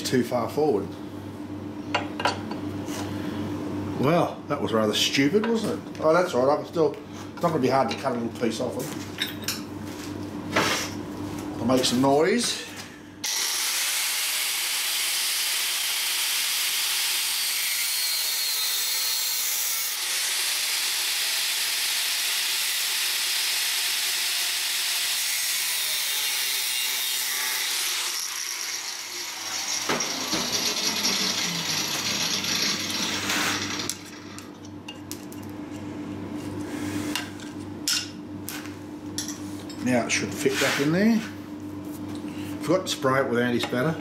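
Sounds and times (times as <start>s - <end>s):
angle grinder cutting metal: 13.2s - 34.4s
grinder disc spinning down: 27.7s - 34.4s.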